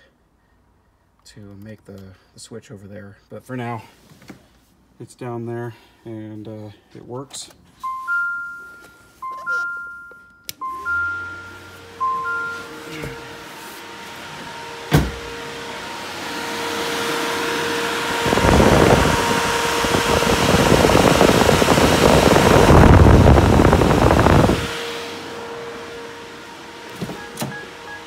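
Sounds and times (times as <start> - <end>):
electric fan rushing air: 10.7 - 28.0.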